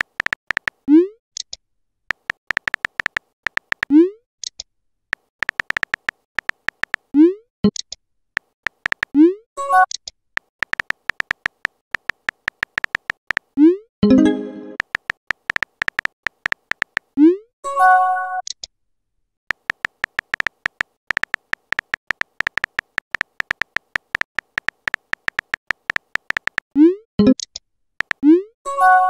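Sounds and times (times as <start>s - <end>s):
keyboard tap clicks: 0.0s - 0.8s, 2.1s - 3.9s, 5.2s - 7.0s, 8.4s - 9.2s, 10.4s - 13.5s, 14.8s - 17.1s, 19.5s - 26.7s, 28.0s - 28.2s.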